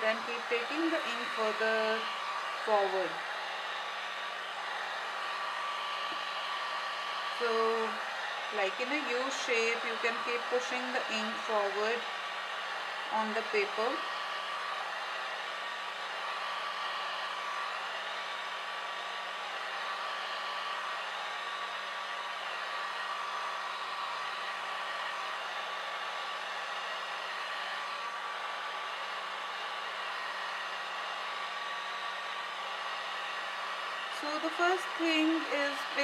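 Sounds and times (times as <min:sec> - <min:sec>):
hair dryer running: 0:00.0 - 0:36.0.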